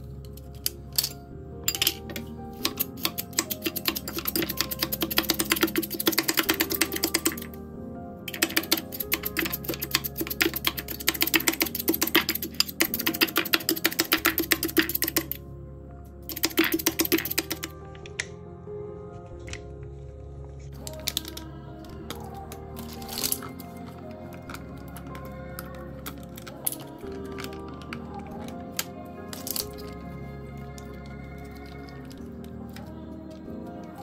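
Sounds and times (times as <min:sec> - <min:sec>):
background music: 0:00.0 - 0:34.0
kitchen utensil clicking rapidly: 0:01.7 - 0:07.5, 0:08.3 - 0:15.4, 0:16.3 - 0:17.7.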